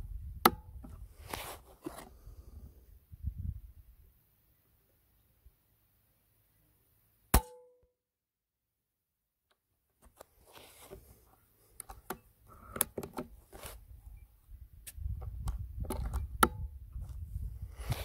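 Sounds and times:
wind rumble on microphone: 0:00.0 - 0:01.3, 0:02.3 - 0:04.1, 0:13.9 - 0:18.0
air rifle firing crack: 0:07.4 - 0:07.6
air rifle handling clicks: 0:11.8 - 0:13.3, 0:14.9 - 0:16.6.

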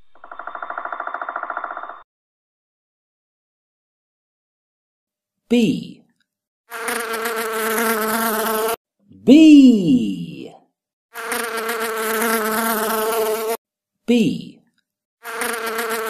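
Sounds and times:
bee buzzing: 0:06.7 - 0:08.8, 0:11.1 - 0:13.6, 0:15.2 - 0:16.0.

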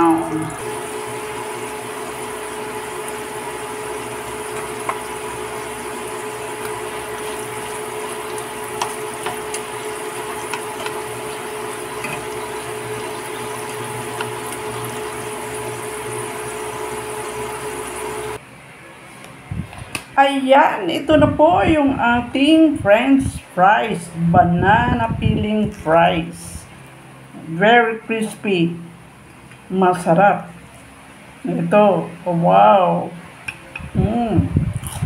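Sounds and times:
oil sizzling and bubbling: 0:00.0 - 0:18.4
steady hum: 0:00.0 - 0:35.0.

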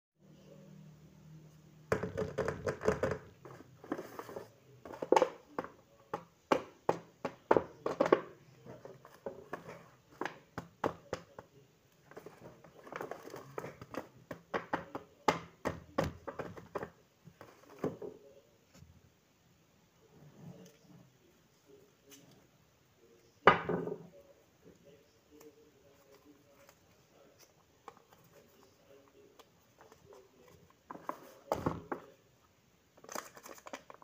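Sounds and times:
paper rustling and crinkling: 0:33.0 - 0:34.0
plastic piece handled: 0:33.0 - 0:34.0.

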